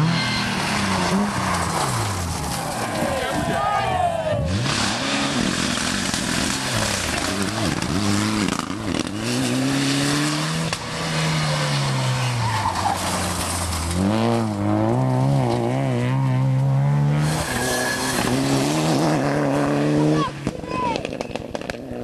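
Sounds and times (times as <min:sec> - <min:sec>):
tyres skidding on loose surface: 0:00.0 - 0:03.8, 0:04.5 - 0:16.2, 0:17.2 - 0:20.5
cars passing at speed: 0:00.0 - 0:20.5
rally car engines revving: 0:00.0 - 0:22.0.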